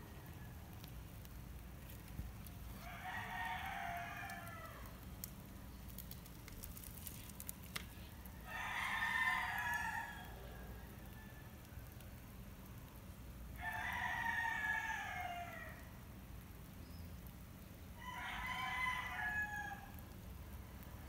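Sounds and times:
rooster crowing: 0:02.8 - 0:04.9, 0:08.3 - 0:11.8, 0:13.6 - 0:15.8, 0:18.0 - 0:20.0.

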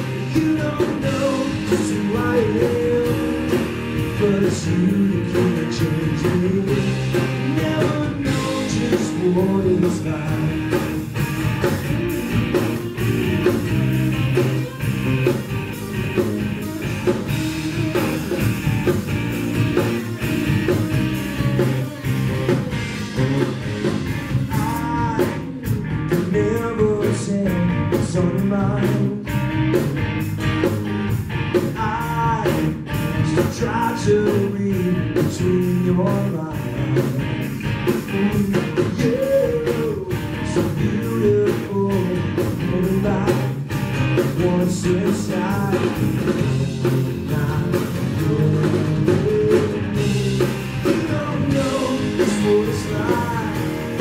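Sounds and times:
man singing: 0:00.0 - 0:11.0, 0:19.6 - 0:29.4, 0:31.5 - 0:54.0
bass guitar: 0:00.0 - 0:54.0
drum kit beat: 0:00.0 - 0:54.0
electric guitars: 0:00.0 - 0:54.0.

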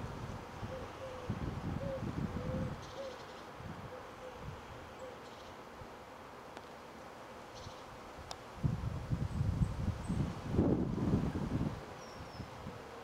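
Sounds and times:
wind rumbling on microphone: 0:00.0 - 0:04.7, 0:08.2 - 0:13.0.

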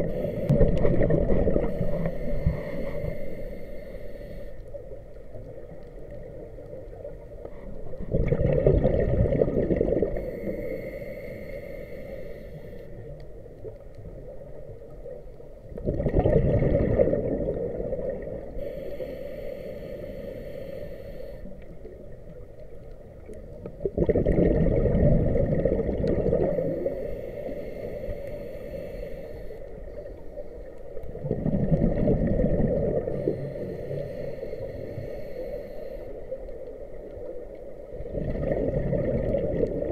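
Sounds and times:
diver exhaling bubbles underwater: 0:00.0 - 0:01.8, 0:08.1 - 0:10.2, 0:15.8 - 0:18.5, 0:23.8 - 0:26.9, 0:31.2 - 0:33.2, 0:38.1 - 0:39.9
regulator hiss: 0:00.0 - 0:04.9, 0:10.2 - 0:13.1, 0:18.5 - 0:21.7, 0:26.5 - 0:30.6, 0:33.0 - 0:36.6.

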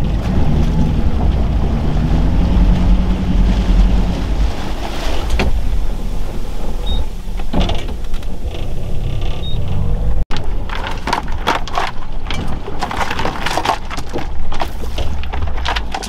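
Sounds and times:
small boat motor running: 0:00.0 - 0:07.5
wind on microphone: 0:00.0 - 0:10.2
water around hull: 0:00.0 - 0:16.0.

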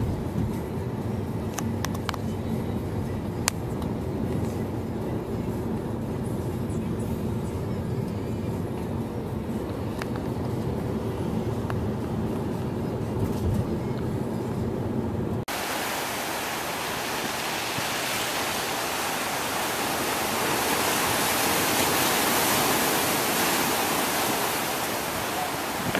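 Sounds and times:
car road rumble: 0:00.0 - 0:25.9
surf rushing: 0:15.5 - 0:25.9.

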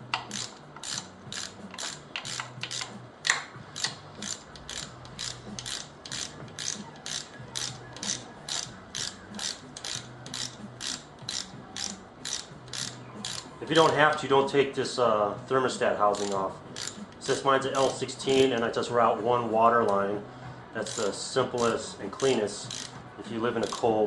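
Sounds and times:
ratchet wrench clicking: 0:00.1 - 0:14.2, 0:16.1 - 0:18.4, 0:20.8 - 0:23.0, 0:23.6 - 0:23.9.

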